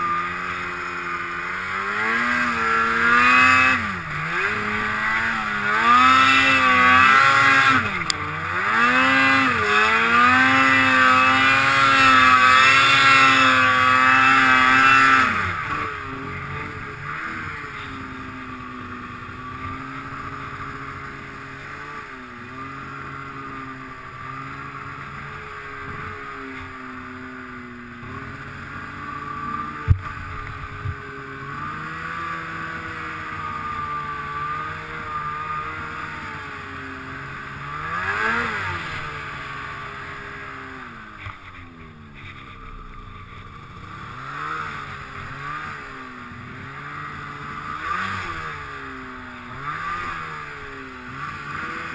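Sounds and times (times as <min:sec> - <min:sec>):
snowmobile engine revving: 0:00.0 - 0:51.9.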